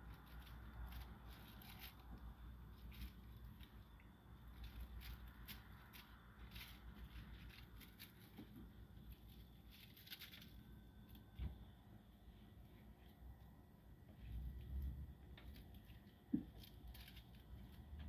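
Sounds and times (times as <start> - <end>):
tinsel cat toy crinkling: 0.0 - 3.8, 4.4 - 11.2, 15.4 - 17.9.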